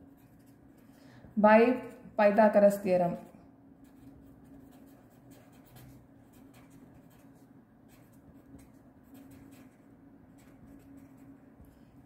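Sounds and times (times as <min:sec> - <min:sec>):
pen scratching on paper: 0:00.0 - 0:00.8, 0:03.8 - 0:11.8
low steady hum: 0:00.0 - 0:12.0.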